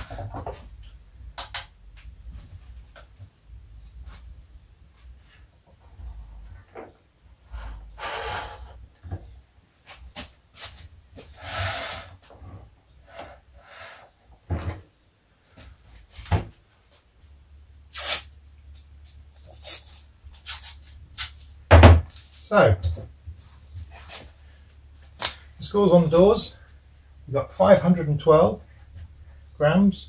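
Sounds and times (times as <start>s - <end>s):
rustling scrapes: 23.3s - 24.7s.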